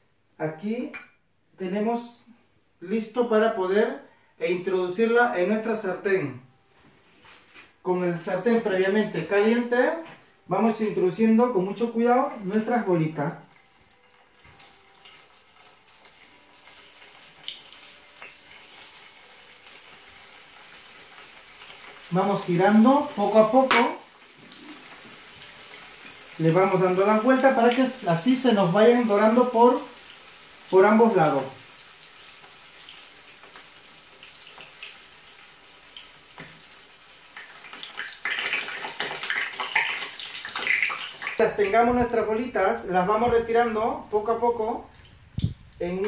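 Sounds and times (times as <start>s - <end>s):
oil sizzling in a frying pan: 12.4s - 41.5s
crackles and pops of frying: 13.4s - 42.0s, 44.9s - 46.0s.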